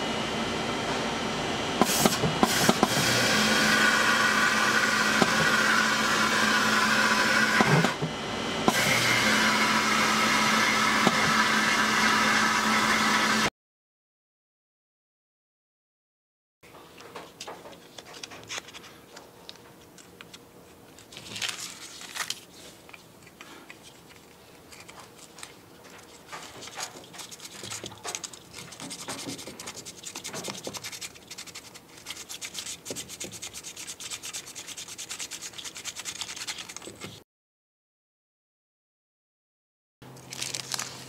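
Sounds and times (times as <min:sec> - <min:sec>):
sandpaper scrubbing plastic: 0:23.8 - 0:37.2.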